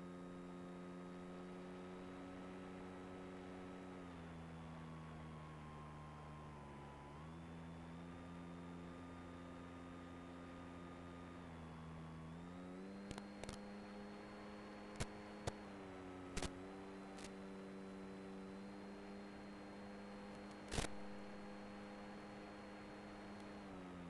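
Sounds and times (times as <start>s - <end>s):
electric motor and propeller hum: 9.2s - 24.0s.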